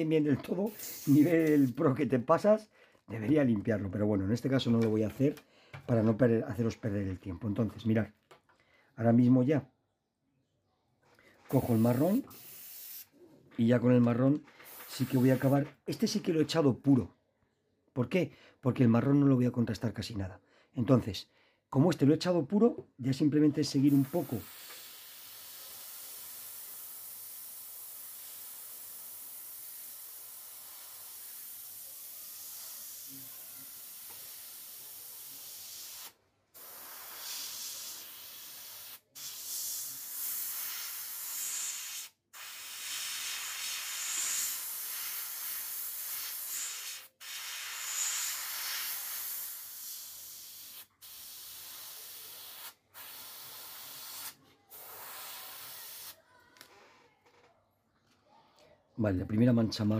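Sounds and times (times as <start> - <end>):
airbrush paint spurts: 0.0 - 1.8, 11.5 - 13.1, 14.6 - 15.7, 23.7 - 56.2
airbrush air hiss: 0.0 - 1.9, 11.5 - 13.1, 14.6 - 15.7, 23.7 - 56.2.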